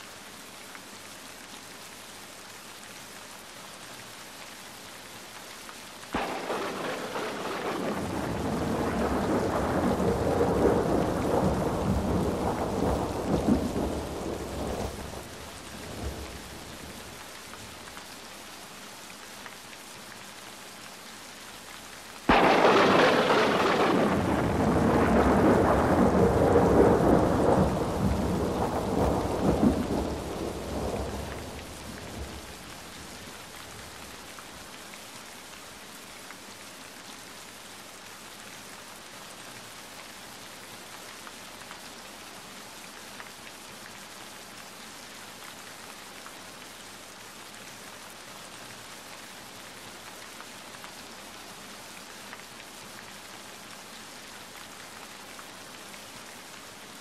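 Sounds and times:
steady rain falling: 0.0s - 57.0s
thunder rumbling: 6.2s - 17.2s, 22.3s - 34.1s.

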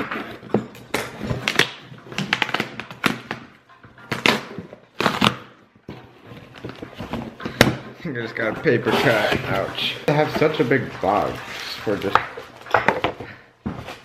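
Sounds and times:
packing tape ripping: 0.9s - 5.6s
cardboard flaps scraping: 8.4s - 12.1s.

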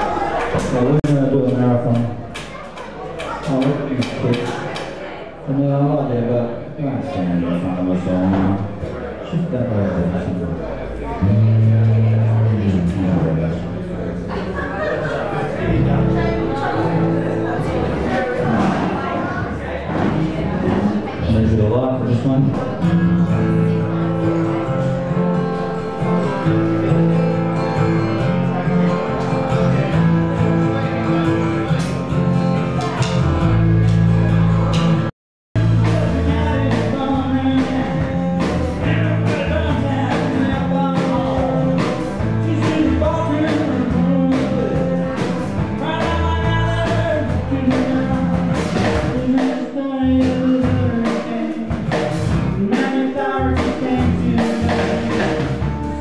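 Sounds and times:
drums: 0.0s - 5.0s, 8.0s - 9.0s, 15.5s - 56.0s
bass: 0.0s - 56.0s
strummed acoustic guitar: 11.2s - 13.3s, 15.5s - 56.0s
man singing: 11.2s - 13.4s, 35.6s - 56.0s.

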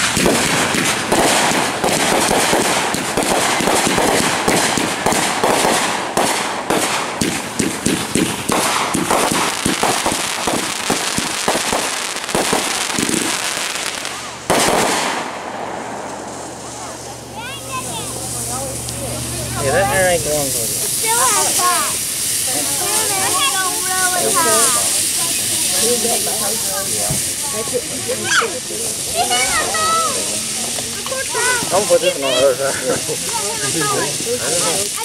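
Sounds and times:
fireworks popping bursts: 0.0s - 35.0s.

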